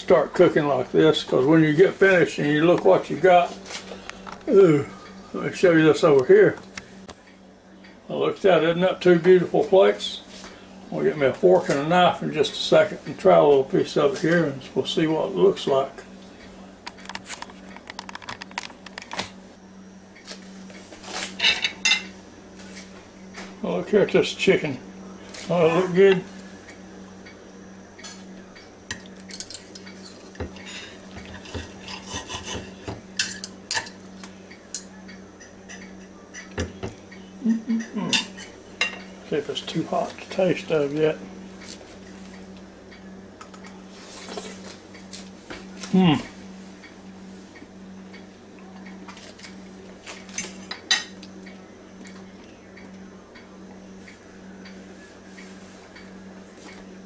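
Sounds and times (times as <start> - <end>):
steady low hum: 0.0 - 57.0
knife and fork scraping a plate: 29.3 - 34.0.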